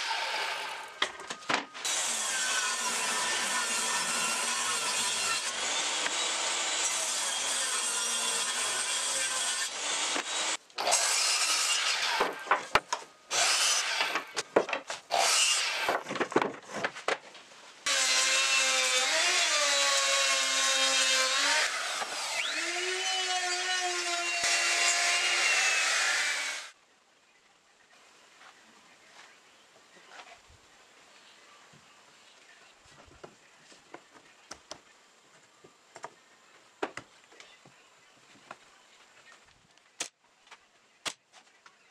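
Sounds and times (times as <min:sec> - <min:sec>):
table saw ripping board: 0:10.1 - 0:17.2.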